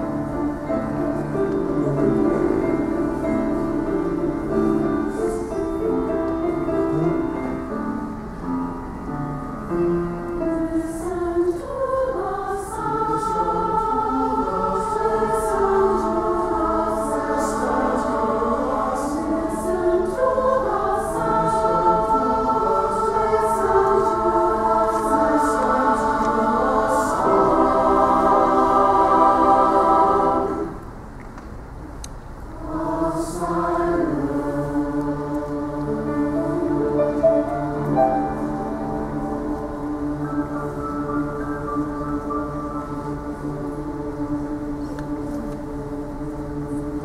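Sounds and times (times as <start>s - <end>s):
mixed choir singing: 0.0s - 8.0s, 10.4s - 30.8s, 32.6s - 47.0s.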